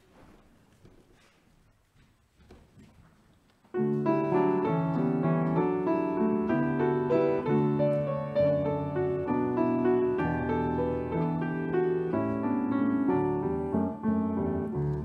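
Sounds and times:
piano chords: 3.7 - 15.0.

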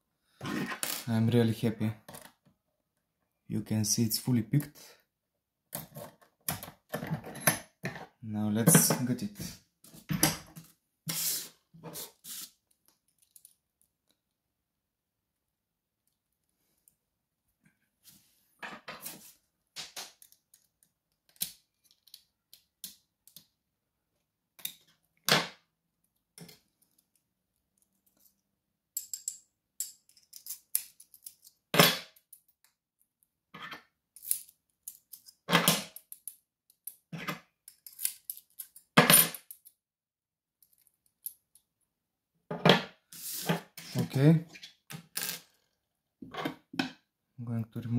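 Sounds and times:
metal lock parts clicking and clattering: 13.1 - 13.6, 20.1 - 23.5, 29.0 - 32.6, 34.1 - 39.8.

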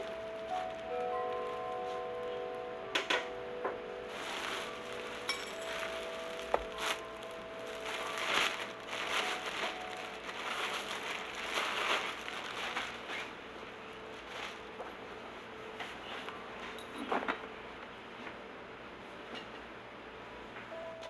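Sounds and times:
plastic wrapping crinkling: 0.0 - 2.4, 4.1 - 14.7.

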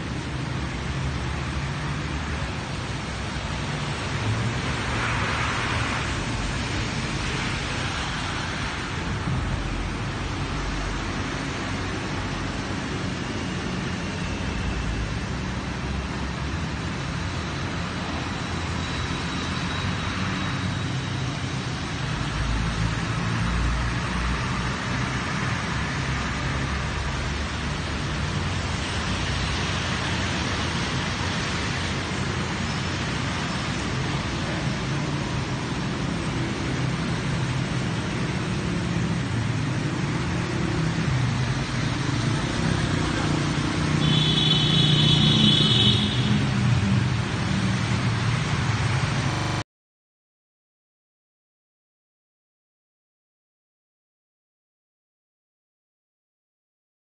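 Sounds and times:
traffic on wet street hiss: 0.0 - 49.6
vehicle engine rumble: 45.4 - 49.6.

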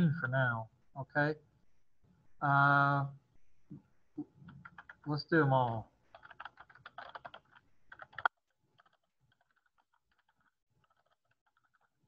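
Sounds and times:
typing on a computer keyboard: 4.4 - 12.0.

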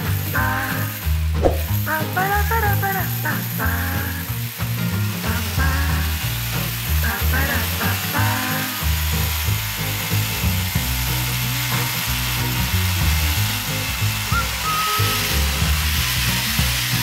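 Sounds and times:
background music with bass line: 0.0 - 17.0
hammer drill boring into stone: 0.4 - 17.0.

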